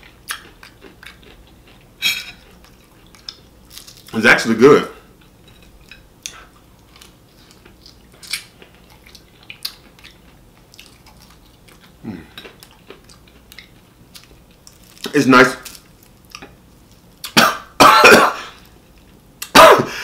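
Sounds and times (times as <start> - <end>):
person chewing crunchy food: 0.0 - 4.2, 5.1 - 17.8.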